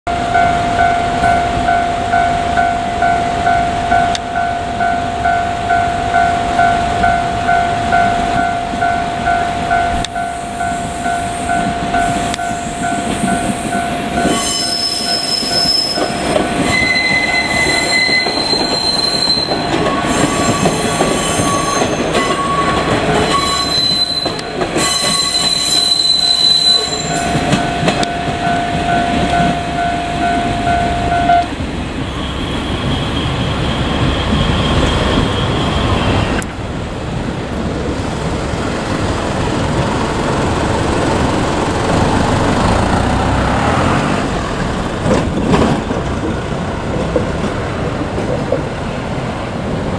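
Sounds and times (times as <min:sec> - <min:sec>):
level crossing alarm ringing: 0:00.1 - 0:31.5
diesel railcar engines running: 0:00.1 - 0:49.9
train wheels squealing: 0:10.4 - 0:27.9, 0:32.0 - 0:36.4.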